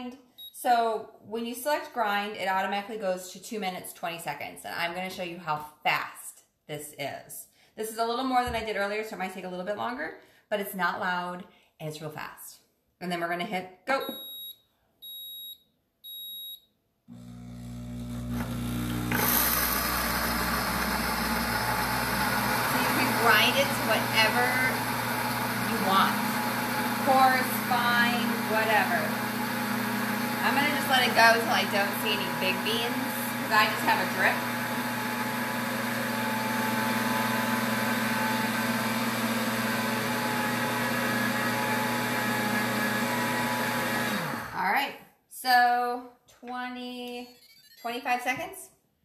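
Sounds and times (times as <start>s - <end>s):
short beep: 14.0s - 16.7s, 47.2s - 48.1s
blades grinding coffee beans: 17.1s - 44.6s
blender motor humming: 17.1s - 44.6s.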